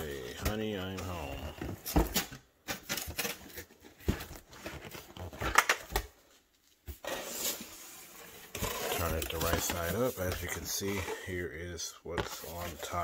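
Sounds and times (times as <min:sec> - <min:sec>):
cardboard rustling: 0:00.1 - 0:11.5, 0:12.1 - 0:13.0.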